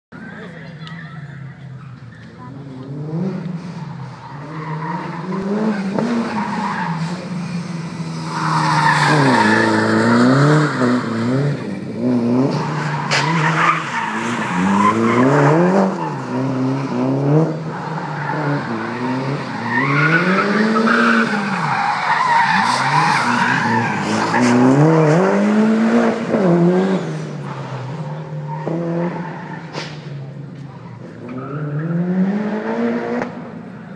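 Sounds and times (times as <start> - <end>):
car engine revving: 1.9 - 33.9
tyres squealing on tarmac: 17.7 - 24.6.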